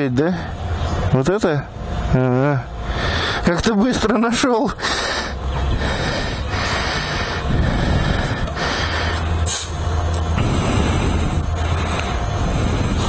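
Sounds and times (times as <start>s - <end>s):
steady low hum: 0.0s - 13.0s
compressed air hissing into tyre: 4.8s - 13.0s.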